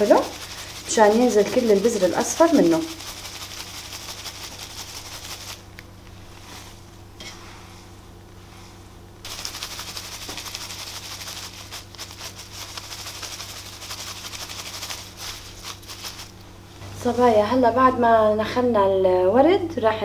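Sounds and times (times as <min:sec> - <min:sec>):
petals rattling in colander: 0:00.0 - 0:05.8, 0:09.2 - 0:16.5
steady low hum: 0:00.0 - 0:20.0.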